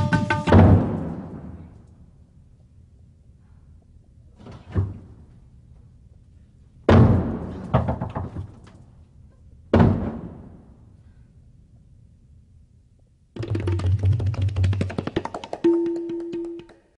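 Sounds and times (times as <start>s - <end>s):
heavy booming hits: 0.4s - 1.7s.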